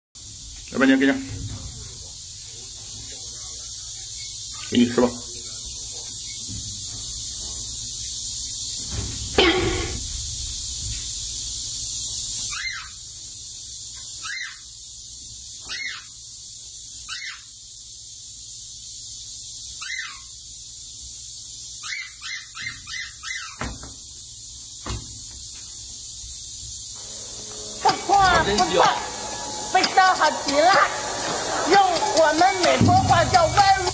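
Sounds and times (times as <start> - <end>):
steady high hiss: 0.2 - 33.9
young monkeys squealing: 12.4 - 13.0, 15.6 - 16.1, 19.7 - 20.3, 21.7 - 23.6.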